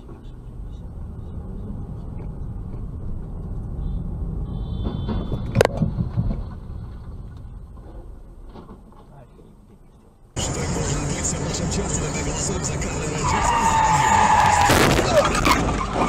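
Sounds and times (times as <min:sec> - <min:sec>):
road and engine rumble: 0:00.0 - 0:16.0
car crash: 0:10.4 - 0:16.0.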